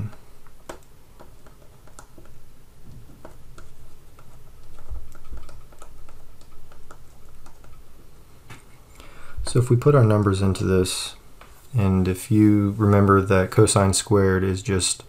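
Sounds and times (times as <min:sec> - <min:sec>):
stylus tapping on tablet: 0:00.1 - 0:07.8.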